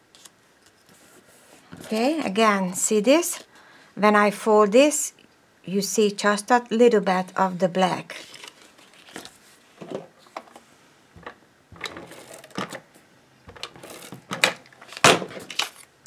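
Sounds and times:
paper rustling: 0:08.0 - 0:10.6, 0:11.2 - 0:12.8, 0:13.5 - 0:15.9.

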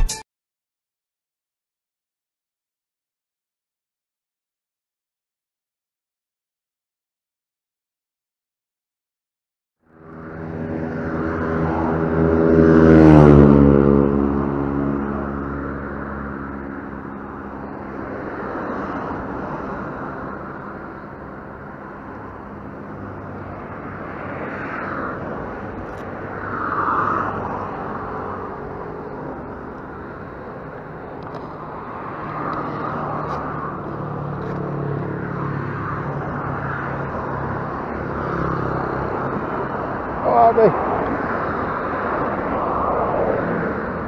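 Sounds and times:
vehicles passing: 0:09.8 - 0:44.0.

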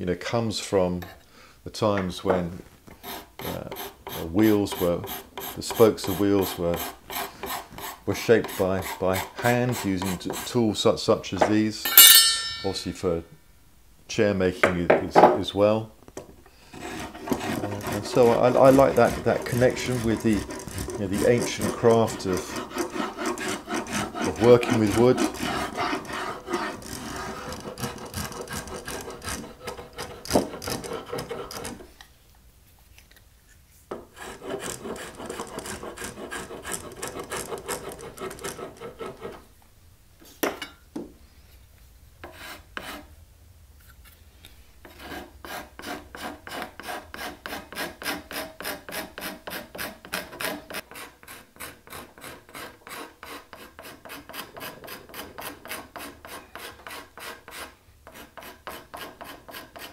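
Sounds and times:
file strokes: 0:02.9 - 0:10.6, 0:16.6 - 0:32.0, 0:33.8 - 0:39.5, 0:42.2 - 0:43.1, 0:43.8 - 0:59.9
tool scraping wood: 0:02.9 - 0:10.8, 0:16.6 - 0:32.0, 0:33.9 - 0:39.5, 0:42.2 - 0:43.1, 0:44.8 - 0:59.9.

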